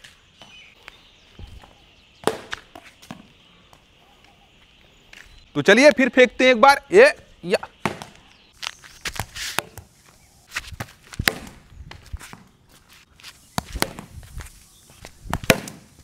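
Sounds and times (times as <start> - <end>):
scuffing footsteps on concrete: 0.0 - 5.5, 7.2 - 15.8
ball bouncing on concrete: 1.4 - 3.8, 7.7 - 9.9, 10.6 - 12.5, 13.6 - 14.2, 15.0 - 15.9
cricket ball struck with bat: 2.2 - 3.3, 7.8 - 8.2, 11.2 - 11.6, 13.6 - 14.1, 15.3 - 15.9.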